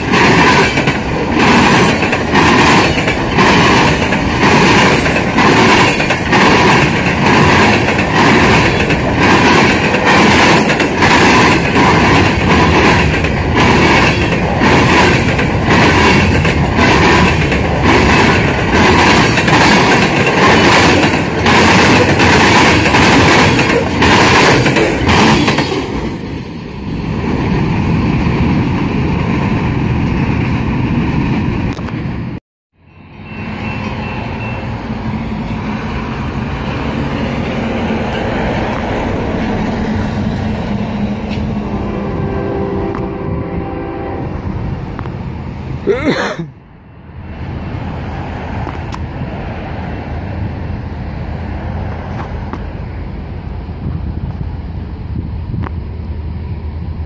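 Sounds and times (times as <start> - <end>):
train wheels clicking over rail joints: 0.0 - 26.3
train rumble: 0.0 - 32.4, 33.2 - 57.0.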